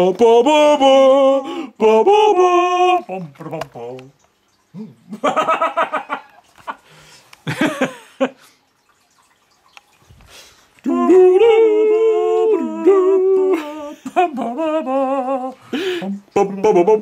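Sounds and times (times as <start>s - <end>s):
person humming: 0.0s - 4.0s, 10.8s - 17.0s.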